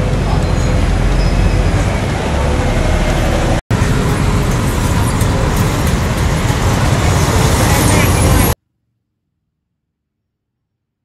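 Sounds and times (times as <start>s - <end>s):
street traffic passing: 0.0s - 8.6s.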